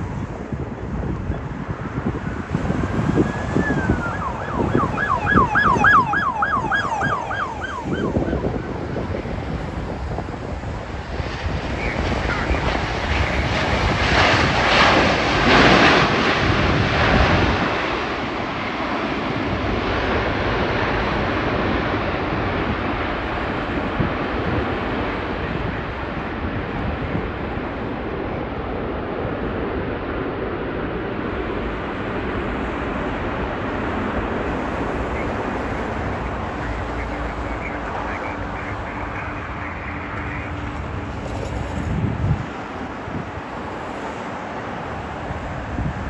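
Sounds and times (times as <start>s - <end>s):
jet engines roaring: 0.0s - 46.0s
wind buffeting microphone: 0.0s - 46.0s
falling whistled notes: 3.3s - 5.1s.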